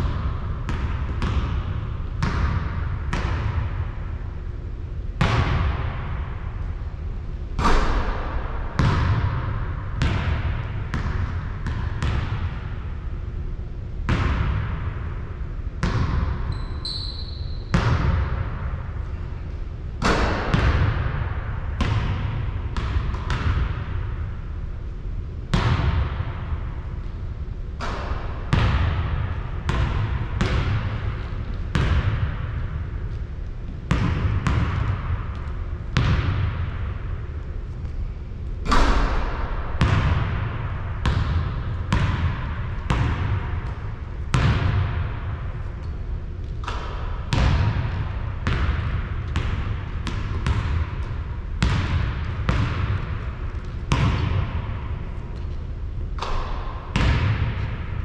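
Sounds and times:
basketball bouncing on hard court: 0.0 - 4.0, 5.2 - 6.2, 7.6 - 13.0, 14.0 - 15.0, 15.8 - 18.8, 20.0 - 24.2, 25.5 - 26.8, 27.8 - 37.2, 38.6 - 55.6, 56.2 - 57.9.

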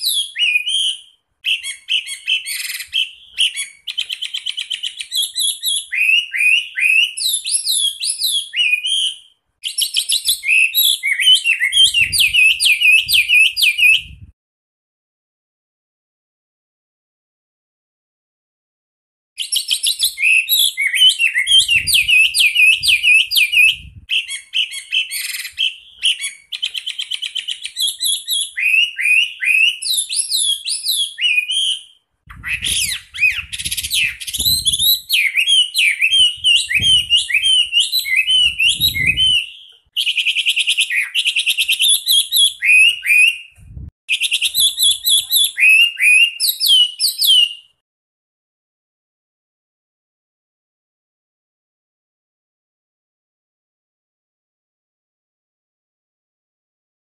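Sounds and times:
bird whistling and trilling: 0.0 - 14.3, 19.4 - 47.8.

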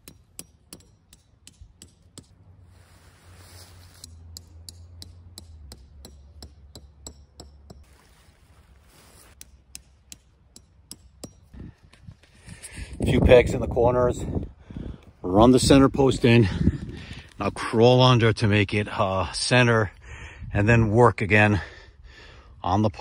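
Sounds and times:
hammer tapping tent stakes: 0.0 - 2.4, 4.0 - 7.9, 9.4 - 11.6.

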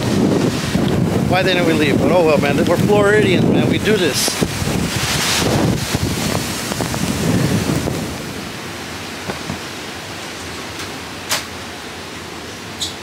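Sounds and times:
wind buffeting microphone: 0.0 - 9.8
rain: 0.0 - 13.0.

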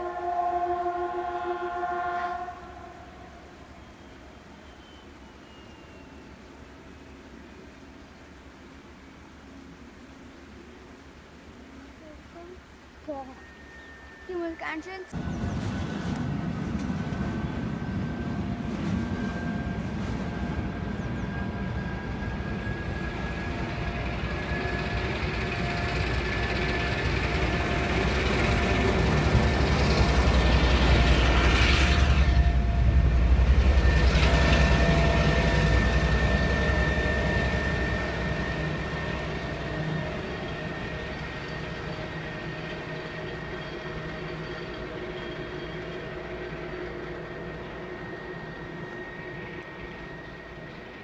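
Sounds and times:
diesel locomotive engine rumble: 0.0 - 51.0
steady high whine: 13.4 - 51.0.

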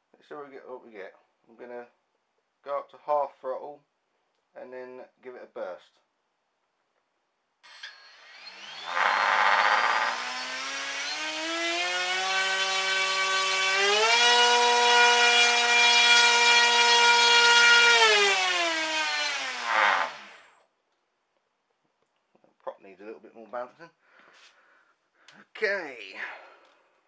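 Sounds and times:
rough motor buzz: 8.1 - 20.5.

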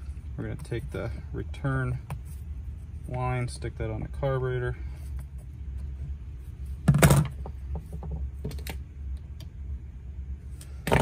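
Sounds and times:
loud handling noise: 6.7 - 8.8, 10.6 - 11.0.

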